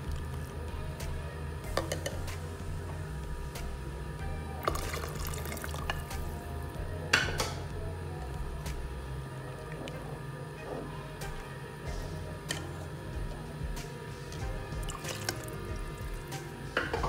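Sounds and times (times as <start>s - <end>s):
spoon stirring liquid: 1.6s - 3.5s, 4.6s - 7.6s, 14.3s - 17.0s
liquid pouring and splashing: 4.6s - 6.5s, 14.7s - 17.0s.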